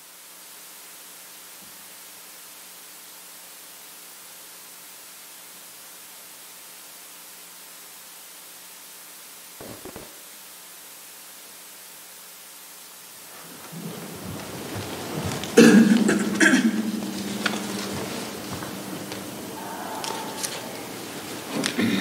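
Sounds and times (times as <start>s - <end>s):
microphone hiss: 0.0s - 22.0s
faint low hum: 13.1s - 22.0s.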